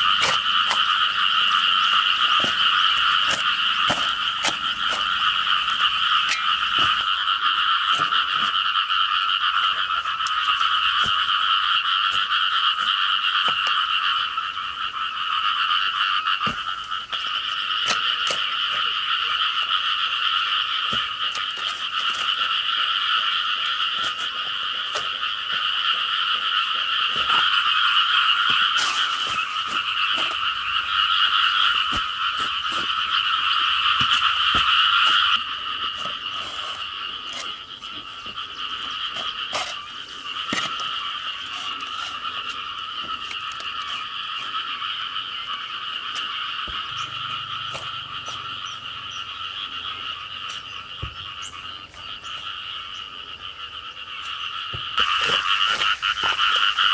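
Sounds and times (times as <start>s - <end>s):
hoe striking soil: 0.0s - 7.2s, 7.9s - 8.6s, 9.8s - 13.8s, 16.4s - 19.0s, 23.2s - 38.4s, 39.1s - 44.0s, 46.6s - 48.4s, 54.7s - 56.9s
chorus of calling creatures: 0.0s - 56.9s.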